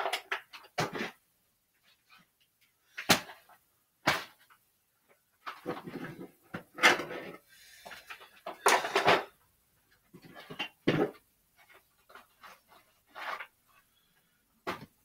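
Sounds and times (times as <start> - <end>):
clattering and rustling: 1.8 - 15.0.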